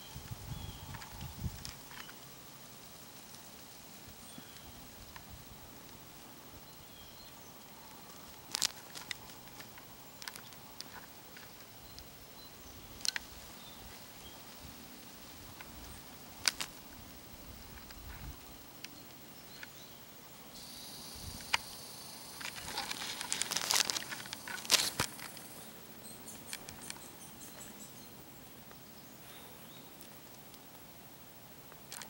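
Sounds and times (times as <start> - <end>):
rustling and crackling: 7.8 - 12.1, 12.8 - 19.7, 22.2 - 27.1.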